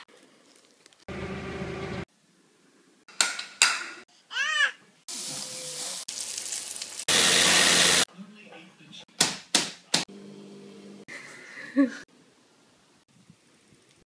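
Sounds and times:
forklift motor humming: 0:01.1 - 0:02.0
meat sizzling on a grill: 0:05.1 - 0:08.0.

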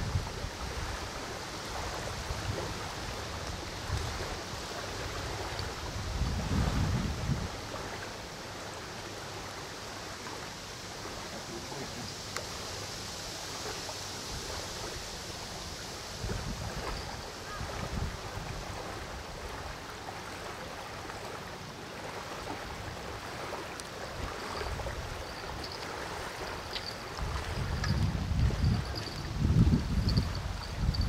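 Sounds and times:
wind buffeting microphone: 0:00.0 - 0:07.8, 0:16.0 - 0:19.8, 0:24.1 - 0:31.0
river water lapping: 0:00.0 - 0:31.0
wind hiss: 0:00.0 - 0:31.0.

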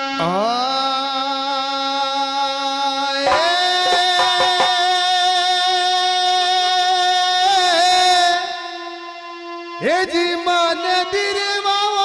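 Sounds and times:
man singing long notes: 0:00.0 - 0:08.6
drum strokes: 0:03.3 - 0:05.2.

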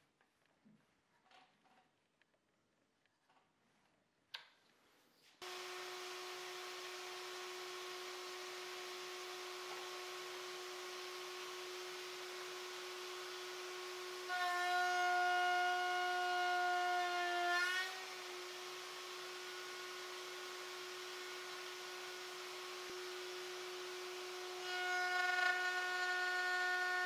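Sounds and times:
router bit cutting wood: 0:05.4 - 0:27.0
router whining: 0:05.4 - 0:27.0.

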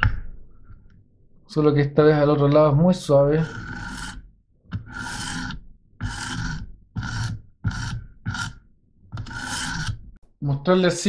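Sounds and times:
sharpening stone rasping on knife: 0:03.4 - 0:04.2, 0:04.9 - 0:08.6, 0:09.2 - 0:10.0.

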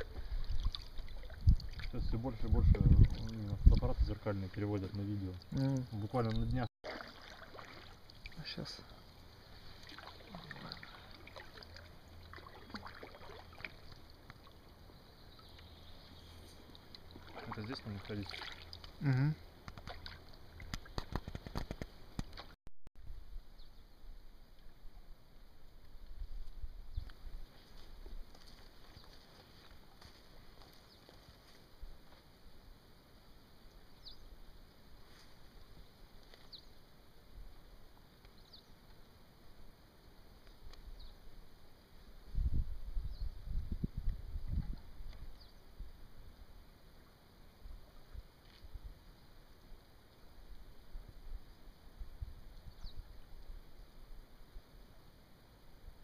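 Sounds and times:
small water splashes and drips: 0:00.0 - 0:15.8, 0:16.6 - 0:19.0, 0:19.6 - 0:22.6.

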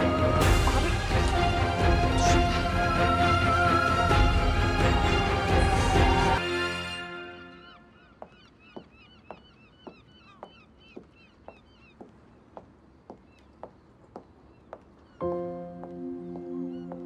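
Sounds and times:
music: 0:00.0 - 0:07.7, 0:15.2 - 0:17.0.

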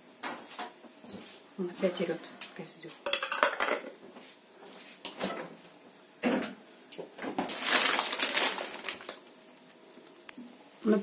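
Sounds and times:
kitchen knocks and clicks: 0:03.0 - 0:04.0.

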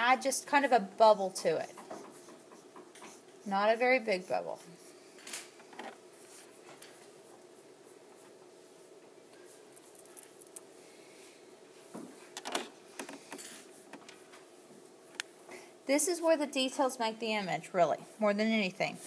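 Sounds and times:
faint room hum: 0:00.0 - 0:19.0
paper and pencil rustling: 0:06.2 - 0:08.4.

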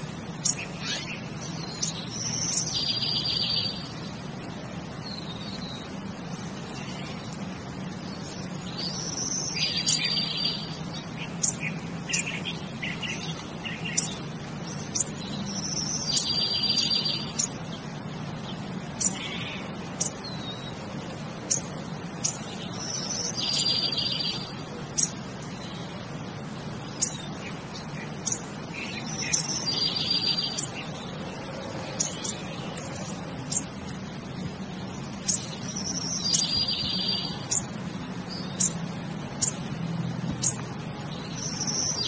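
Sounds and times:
birds chirping: 0:00.0 - 0:42.0
buzzy bird trill: 0:34.9 - 0:39.7.

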